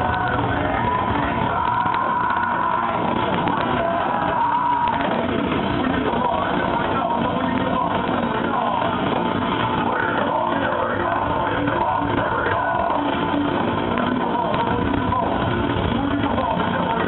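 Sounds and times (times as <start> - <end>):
heavy metal band playing live: 0.0 - 17.0.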